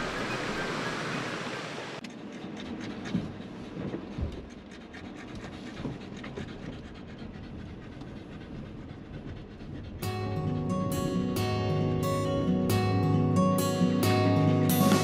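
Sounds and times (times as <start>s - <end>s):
dog panting: 2.0s - 12.1s
acoustic guitar music: 10.0s - 15.0s.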